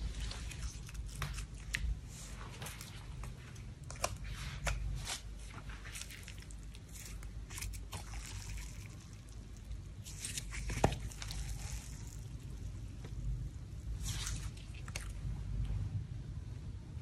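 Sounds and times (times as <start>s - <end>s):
slime squeezed by hand: 5.9s - 12.6s.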